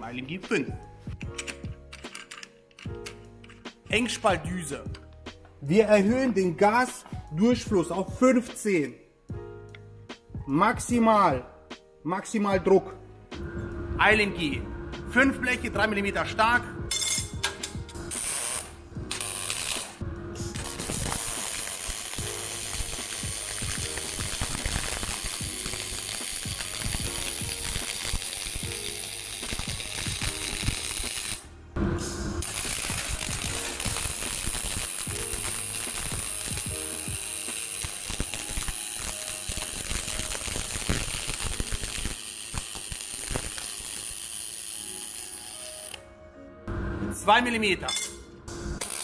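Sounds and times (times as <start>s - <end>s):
welding arc crackling: 18.1s - 31.5s, 32.4s - 46.0s, 48.8s - 49.0s.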